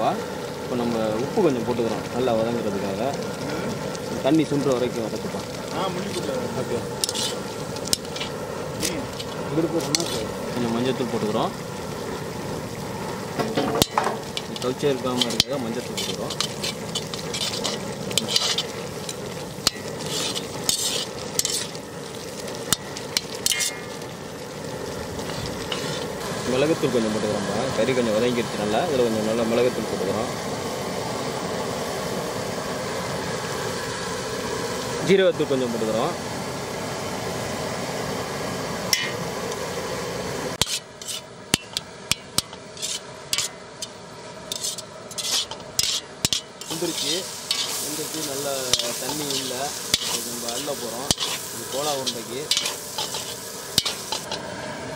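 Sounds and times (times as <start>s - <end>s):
meat sizzling in a pan: 0.0s - 54.9s
metal ladle scraping pan: 6.9s - 10.6s, 13.4s - 26.2s, 38.9s - 39.2s, 40.6s - 54.4s.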